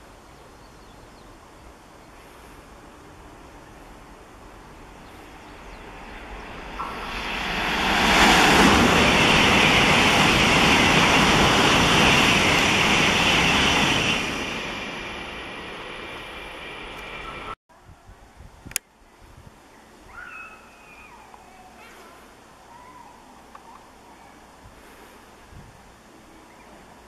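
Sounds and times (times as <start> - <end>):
train passing at speed: 2.2 - 17.6.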